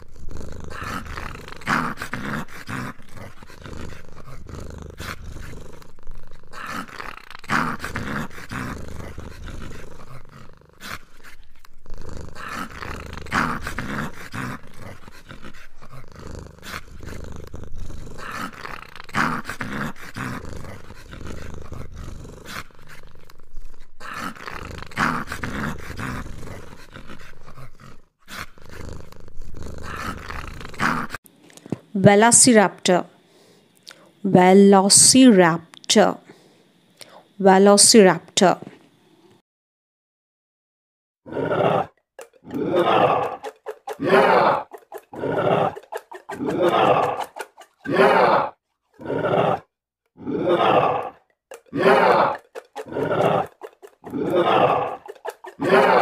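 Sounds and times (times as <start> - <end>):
dinosaur growling roars: 42.5 - 56.0.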